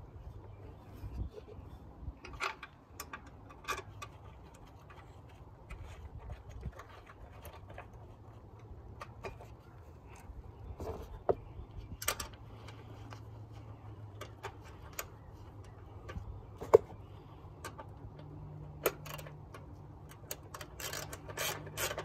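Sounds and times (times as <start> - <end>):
ratchet clicking: 20.1 - 22.0.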